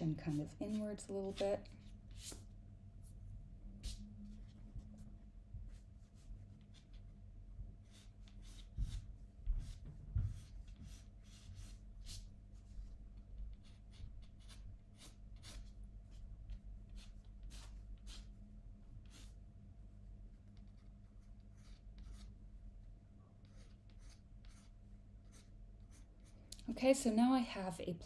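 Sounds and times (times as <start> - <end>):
pencil sketching on paper: 7.8 - 12.3, 13.5 - 15.8, 16.5 - 18.4, 20.5 - 22.3, 23.4 - 26.4.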